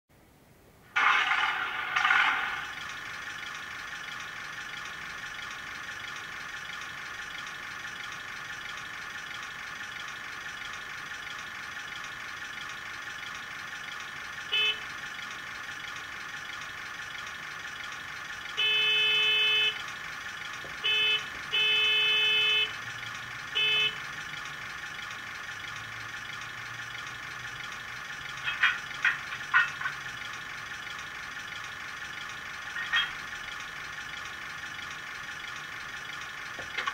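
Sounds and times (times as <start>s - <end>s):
diesel engine idle through small speaker: 0.9s - 36.9s.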